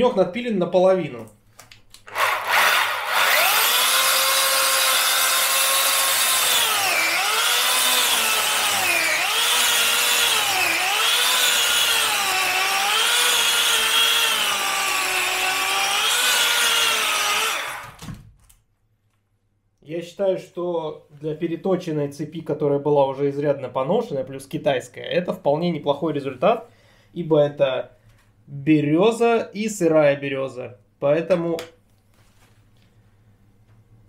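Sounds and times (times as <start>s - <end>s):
electric chainsaw cutting wood: 2.1s - 18.1s.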